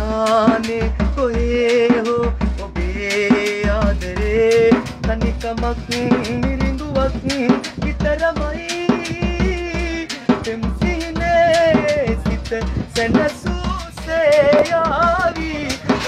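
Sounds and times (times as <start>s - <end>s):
man singing: 0.0s - 16.0s
hand drum thumps and slaps: 3.5s - 16.0s.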